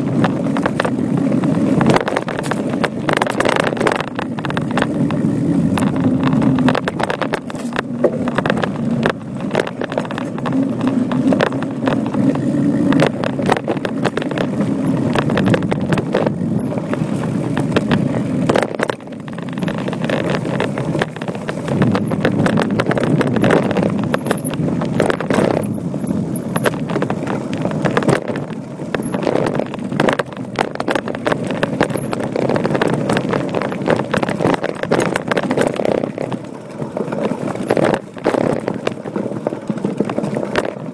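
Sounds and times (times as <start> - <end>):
bike rattling and knocking: 0.0 - 40.9
bike tyres crunching over gravel: 0.0 - 40.9.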